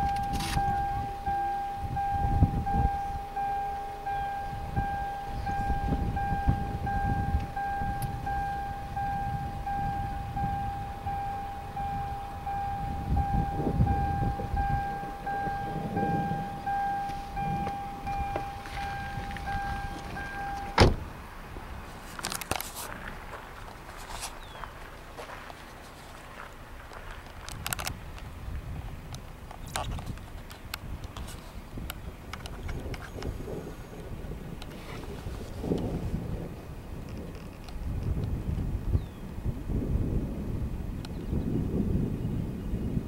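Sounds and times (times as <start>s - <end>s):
steady high tone: 0.0s - 20.9s
wind buffeting microphone: 0.0s - 43.0s.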